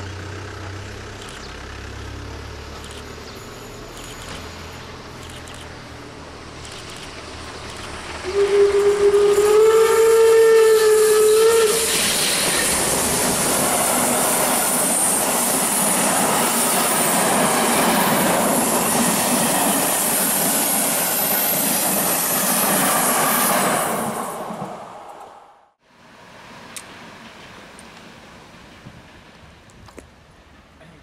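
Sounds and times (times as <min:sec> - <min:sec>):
train running past: 0:00.1 - 0:29.6
steam locomotive whistle: 0:08.2 - 0:13.3.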